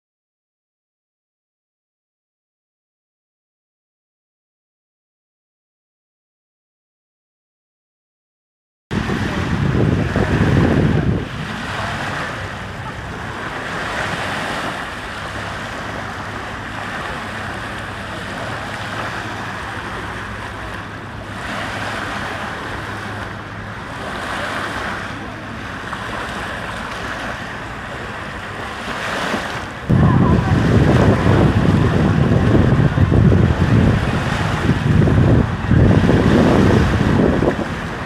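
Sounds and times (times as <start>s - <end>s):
lake water rushing: 8.9s - 38.0s
wind buffeting microphone: 8.9s - 38.0s.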